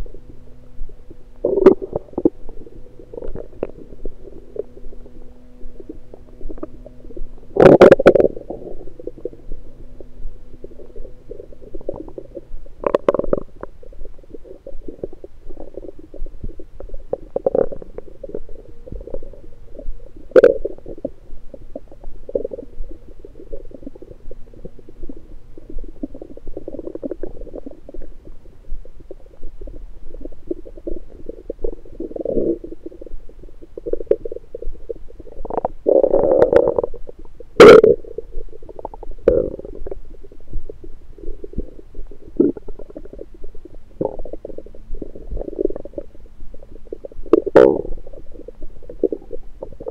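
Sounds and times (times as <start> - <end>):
stomach gurgling: 0.0 - 49.9.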